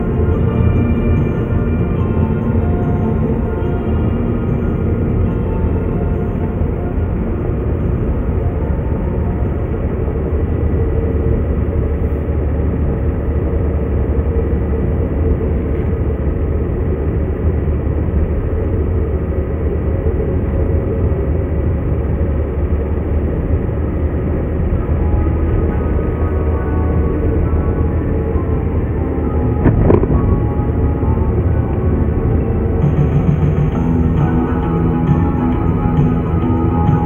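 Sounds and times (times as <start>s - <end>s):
car cabin road rumble: 0.0s - 37.0s.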